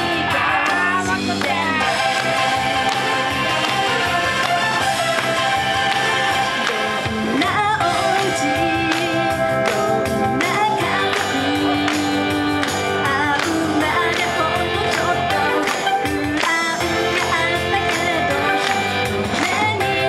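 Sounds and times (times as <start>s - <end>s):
backing track with steady beat: 0.0s - 20.0s
female pop vocals: 7.2s - 20.0s.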